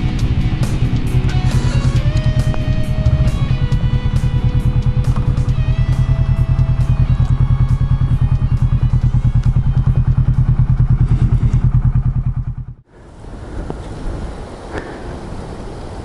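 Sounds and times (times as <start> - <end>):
motorcycle engine running: 0.0 - 12.9
faint wind on microphone: 10.6 - 16.0.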